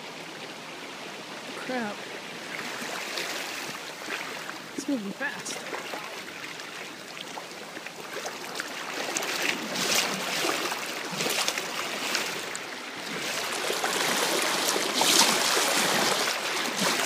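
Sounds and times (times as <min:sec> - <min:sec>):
floodwater rushing and sloshing: 0:00.0 - 0:17.0
splashing footsteps in water: 0:05.5 - 0:17.0.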